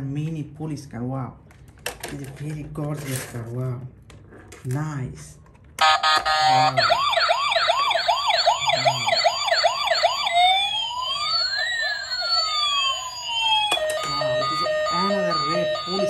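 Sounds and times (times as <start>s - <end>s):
toy siren tone and wail: 5.8s - 16.0s.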